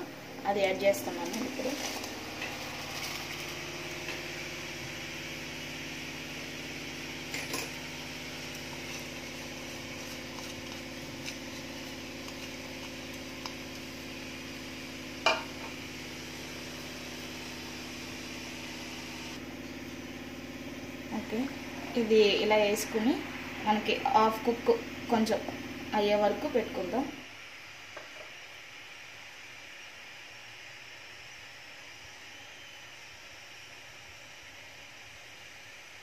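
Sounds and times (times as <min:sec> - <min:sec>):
water boiling in a pot: 0:00.0 - 0:36.0.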